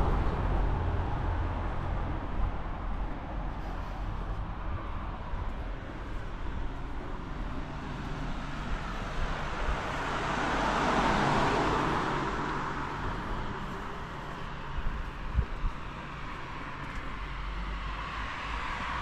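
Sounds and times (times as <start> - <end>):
car driving past: 7.2 - 14.7.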